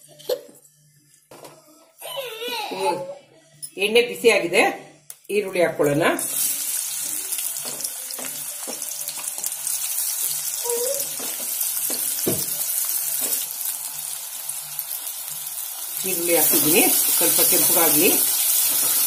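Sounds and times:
onions frying in hot oil: 6.2 - 19.0.

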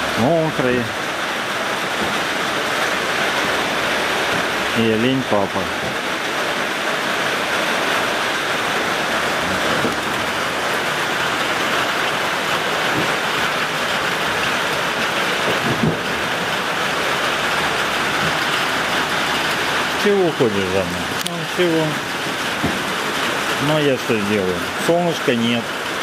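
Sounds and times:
pouring rain: 0.0 - 26.0.

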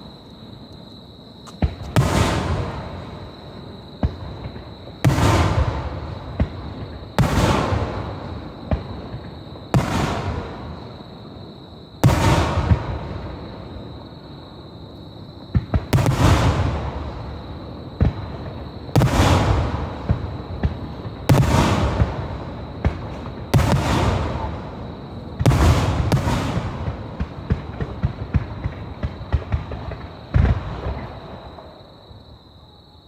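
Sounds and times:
firework shells booming: 1.4 - 3.2, 4.0 - 10.8, 12.0 - 13.3, 15.5 - 17.3, 18.0 - 31.7.

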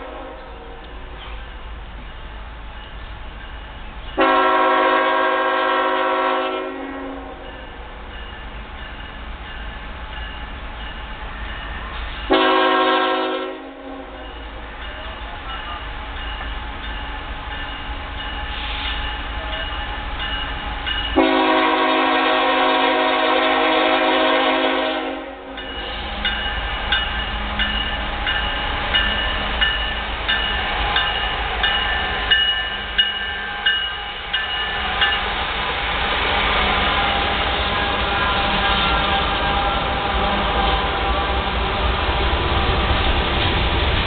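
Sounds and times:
locomotive air horn blasts: 0.0 - 0.7, 4.2 - 7.5, 12.3 - 14.3, 21.2 - 26.2, 36.7 - 41.4
train rumbling: 0.0 - 44.0
crossing bell ringing: 1.2 - 5.6, 7.2 - 12.8, 14.0 - 22.4, 25.4 - 35.8, 36.6 - 40.0.

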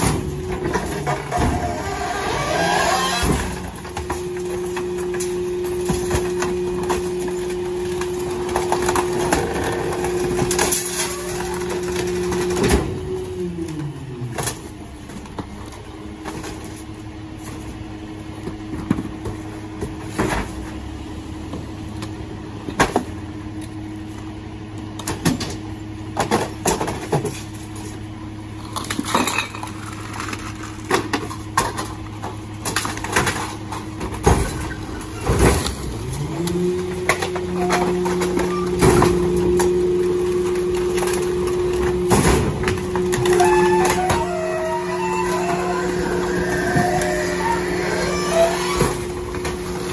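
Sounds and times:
garbage truck engine running: 0.0 - 49.9
waste clanking into hopper: 28.7 - 49.9.

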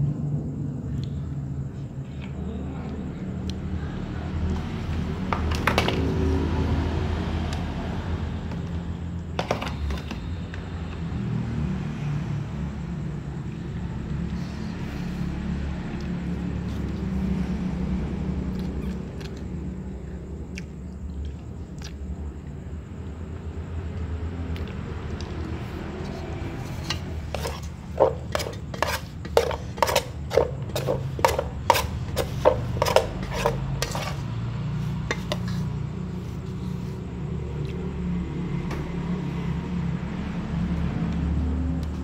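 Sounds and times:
steady low hum: 0.0 - 5.5.

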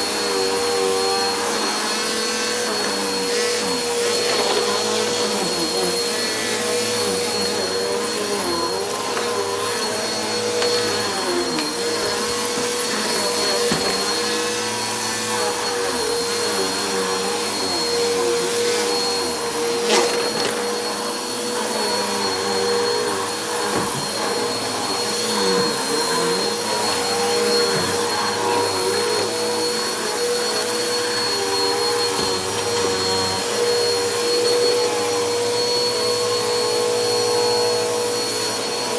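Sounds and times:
vacuum cleaner running on carpet: 0.0 - 38.9.

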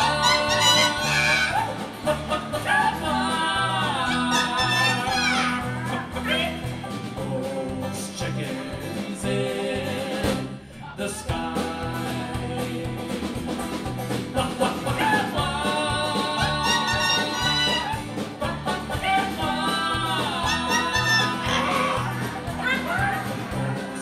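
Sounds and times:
person singing long notes: 0.0 - 6.2, 14.7 - 22.3
country band playing: 0.0 - 24.0.

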